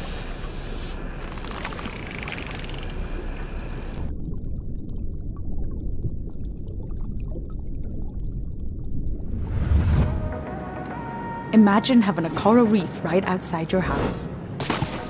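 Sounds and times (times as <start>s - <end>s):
wind: 0.0s - 4.2s
faint underwater crackling: 0.0s - 9.2s
underwater rumble: 1.0s - 10.1s.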